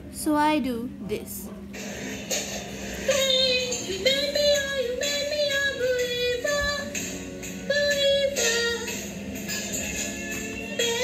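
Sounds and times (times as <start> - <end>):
girl singing slow melody: 3.0 - 11.0.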